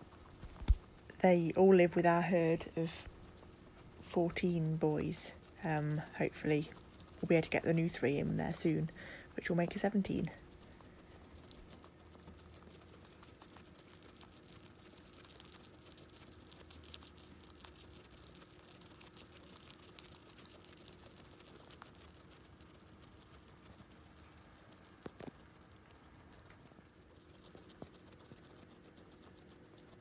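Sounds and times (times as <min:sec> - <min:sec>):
faint steady hum: 0:00.0 - 0:30.0
guinea pigs chewing hay: 0:00.0 - 0:30.0.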